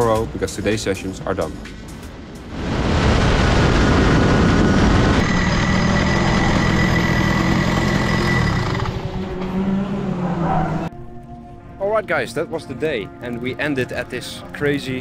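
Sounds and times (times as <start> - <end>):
large vehicle engine running: 3.0 - 10.3.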